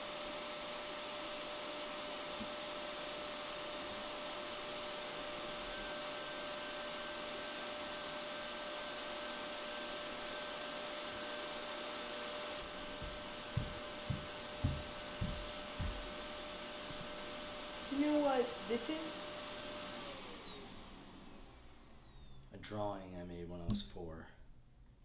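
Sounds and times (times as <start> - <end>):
vacuum cleaner running: 0.0 - 22.5
dull low thumps: 12.6 - 17.3.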